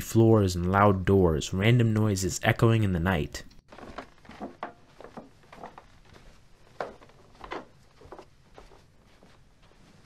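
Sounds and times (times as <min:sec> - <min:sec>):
slow soft footsteps: 0:03.6 - 0:10.0.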